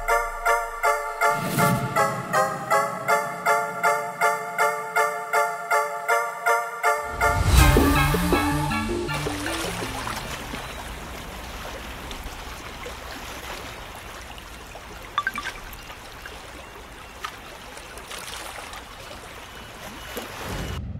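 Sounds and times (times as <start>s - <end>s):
trickling lapping water: 7.6s - 20.8s.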